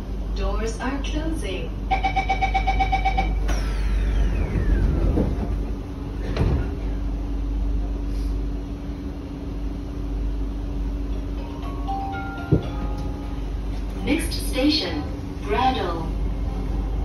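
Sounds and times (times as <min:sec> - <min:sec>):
train hum and rumble: 0:00.0 - 0:17.0
train doors shutting knock: 0:03.2 - 0:07.0, 0:12.1 - 0:13.3
falling whine: 0:03.4 - 0:06.9.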